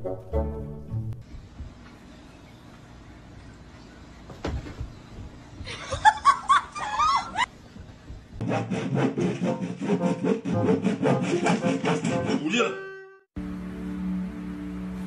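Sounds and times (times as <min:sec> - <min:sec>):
person giggling: 0:05.6 - 0:07.5.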